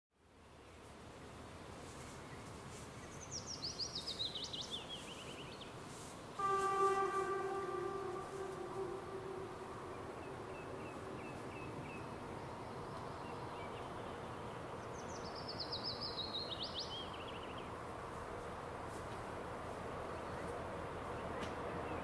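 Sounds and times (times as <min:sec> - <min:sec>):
faint background noise: 0:00.1 - 0:22.0
faint high chirps: 0:06.4 - 0:12.4.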